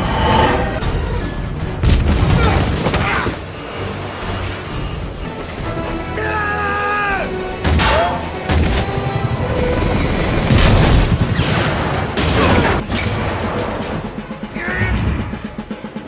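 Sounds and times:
helicopter rotors: 5.0s - 12.2s
sharp impacts: 5.3s - 13.4s
booming explosions: 7.6s - 13.8s.

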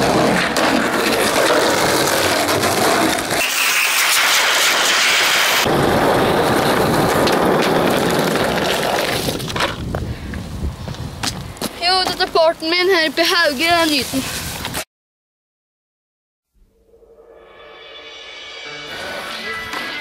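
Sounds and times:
skateboard wheels rolling on asphalt: 0.0s - 14.8s.

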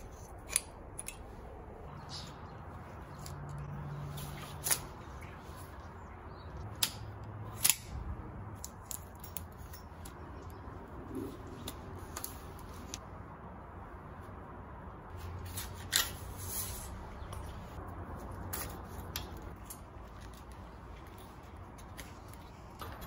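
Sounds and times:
cable cutters snipping: 6.6s - 10.2s
bicycle cables clicking and snapping: 6.7s - 8.0s, 8.6s - 10.6s
hand tools being handled: 8.6s - 10.6s.

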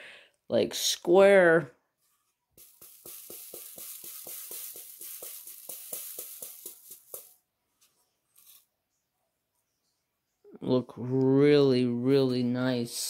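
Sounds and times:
beads rattling in plastic tray: 2.6s - 7.4s, 8.4s - 8.6s.

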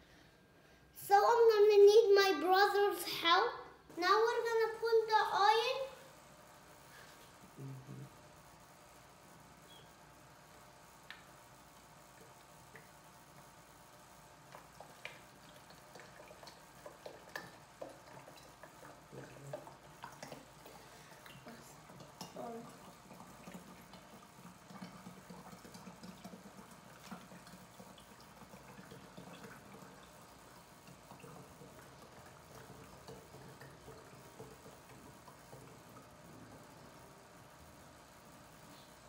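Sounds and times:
oil trickling through funnel: 9.6s - 39.0s.

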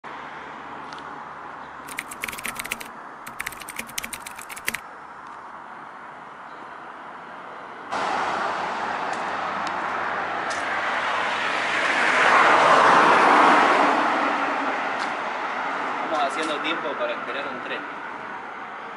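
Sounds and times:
traffic noise: 0.0s - 18.9s
street ambience: 0.1s - 18.9s
keyboard key clicks: 1.9s - 4.8s.

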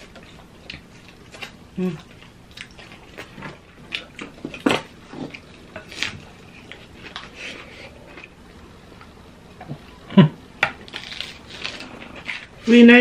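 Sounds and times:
crunchy bites and chewing: 10.6s - 12.6s.

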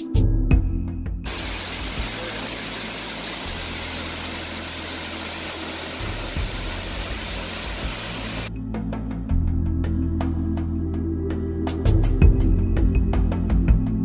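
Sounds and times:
background music with bass: 0.0s - 14.0s
waterfall rushing: 1.3s - 8.5s.

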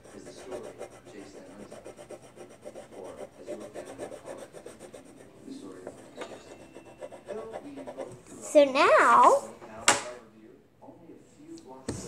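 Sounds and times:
coloring tool scribbling on paper: 0.0s - 8.2s.

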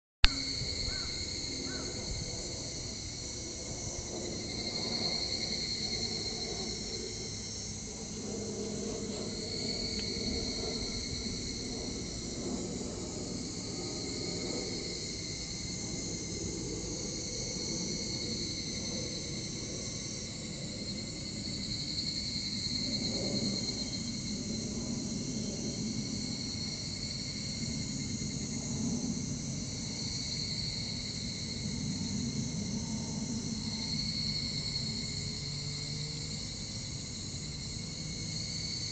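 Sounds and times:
insects shrilling: 0.3s - 3.3s.

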